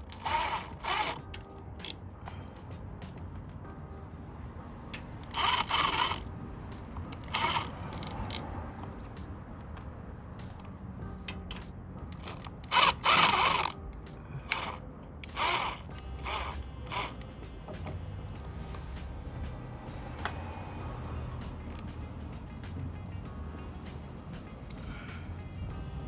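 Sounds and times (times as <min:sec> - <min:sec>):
impact driver bursts: 0:00.1 - 0:01.2, 0:12.7 - 0:13.8, 0:14.5 - 0:17.1.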